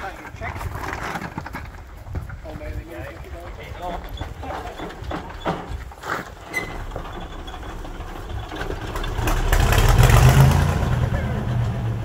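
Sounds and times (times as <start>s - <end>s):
diesel engine catching and running: 4.7s - 12.0s.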